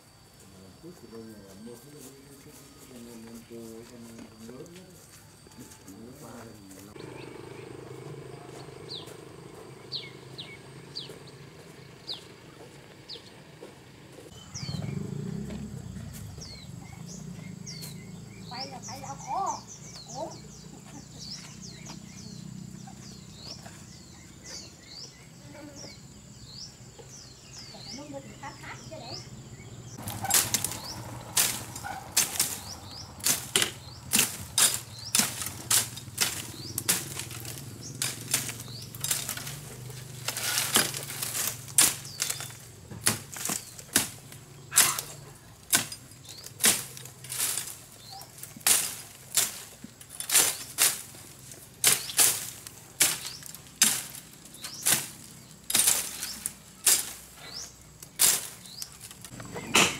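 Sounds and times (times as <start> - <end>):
machete chopping bamboo: 30.0 - 59.9.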